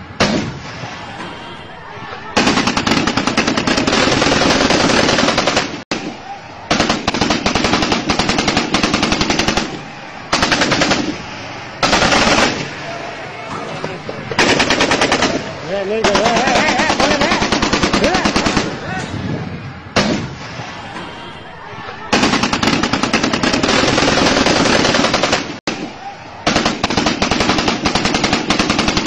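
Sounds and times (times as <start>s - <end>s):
automatic gunfire bursts: 2.4s - 5.8s, 6.7s - 12.7s, 14.3s - 18.8s, 22.1s - 25.6s, 26.4s - 29.0s.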